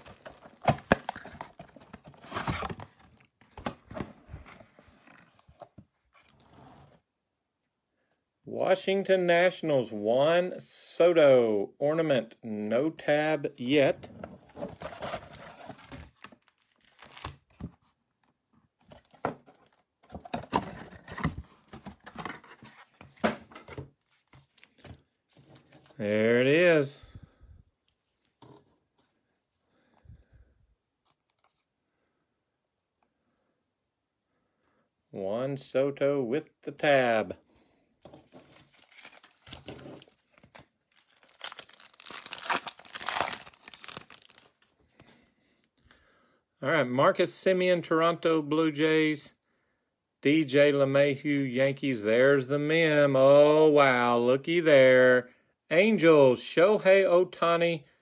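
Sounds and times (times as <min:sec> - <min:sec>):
foil wrapper crinkling and tearing: 0:14.8 - 0:17.4, 0:38.5 - 0:44.6
cards being handled: 0:38.0 - 0:45.2.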